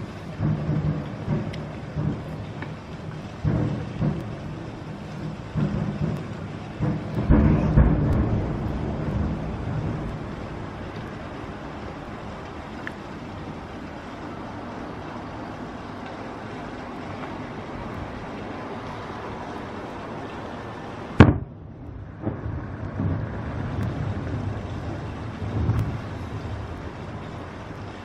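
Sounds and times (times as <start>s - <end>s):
fireworks hiss: 0.0s - 28.0s
loud firework bang: 3.4s - 4.6s, 5.5s - 12.2s, 21.2s - 23.8s
muffled booms of shells bursting: 5.4s - 12.0s, 21.2s - 21.6s.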